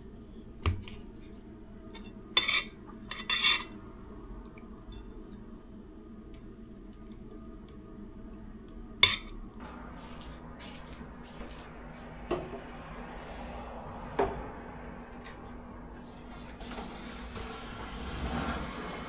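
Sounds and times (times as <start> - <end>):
dishes clinking: 2.0 - 3.8, 9.0 - 9.4.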